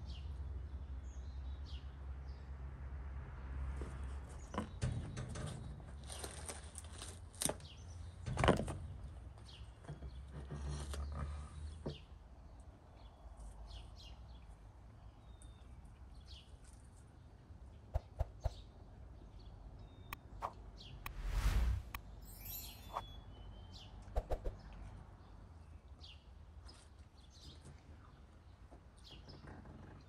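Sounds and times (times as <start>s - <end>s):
birds chirping: 19.4s - 24.6s.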